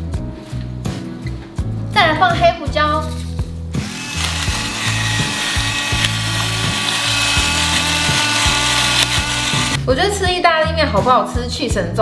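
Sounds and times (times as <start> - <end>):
electric pepper mill grinding: 3.8 - 9.8.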